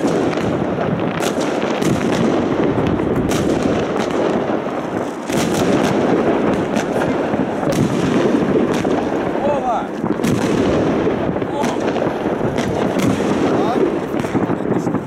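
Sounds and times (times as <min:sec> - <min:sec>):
distant fireworks rumble and crackle: 0:00.0 - 0:15.0
sharp firework bangs: 0:00.0 - 0:15.0.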